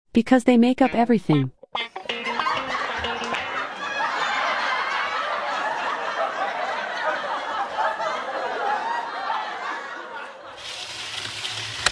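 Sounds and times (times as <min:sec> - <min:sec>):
audience laughter: 0:01.8 - 0:10.7.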